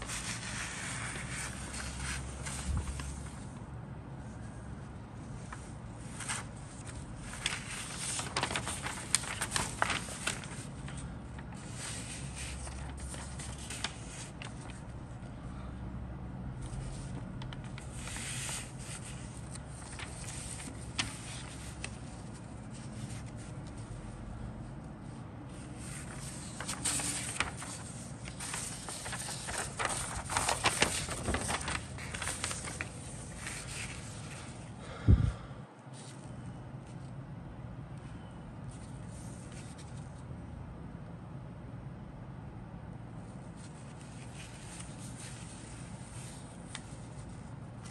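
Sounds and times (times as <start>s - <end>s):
paper rustling: 0.0s - 3.7s, 5.2s - 15.4s, 16.6s - 34.8s, 38.7s - 40.3s, 43.4s - 47.9s.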